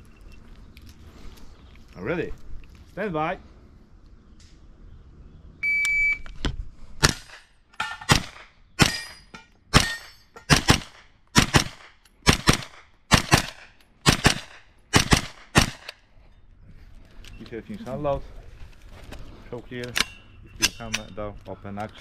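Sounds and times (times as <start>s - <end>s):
shot timer beep: 5.6s - 6.2s
carbine gunshots: 8.0s - 9.1s, 9.7s - 16.0s.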